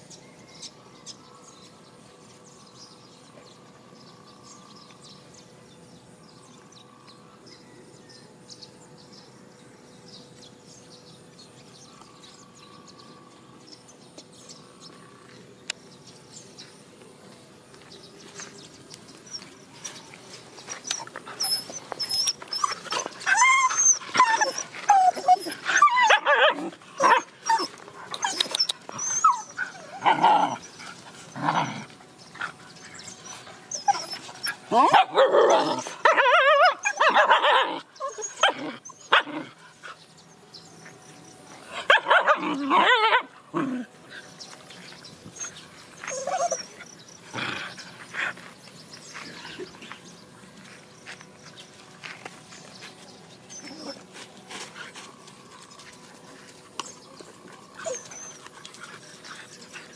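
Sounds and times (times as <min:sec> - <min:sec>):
dogs whining and yelping: 0:20.7 - 0:30.8, 0:32.5 - 0:39.4, 0:41.9 - 0:43.8, 0:45.2 - 0:48.4, 0:53.4 - 0:54.2, 0:57.7 - 0:59.9.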